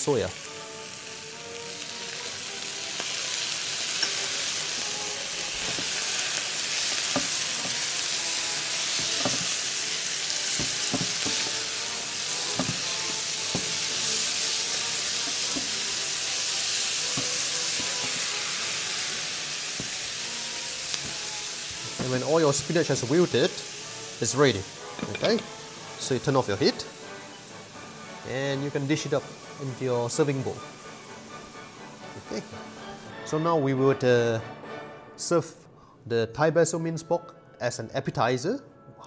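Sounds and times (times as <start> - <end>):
spinach sizzling in a pan: 0.0 - 33.2
stirring knocks: 8.9 - 9.6, 10.5 - 11.6, 12.4 - 14.1, 15.2 - 15.8, 17.1 - 18.2.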